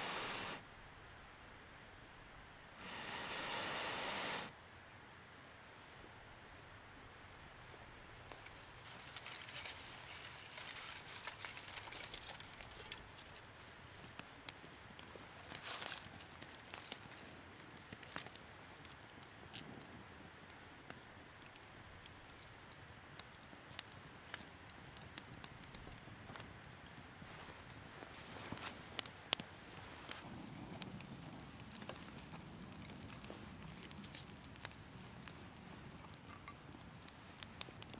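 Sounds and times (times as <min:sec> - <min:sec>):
grass tinder burning: 0:00.0 - 0:00.6, 0:02.8 - 0:04.5, 0:08.0 - 0:37.9
twigs crackling and snapping: 0:08.1 - 0:37.9.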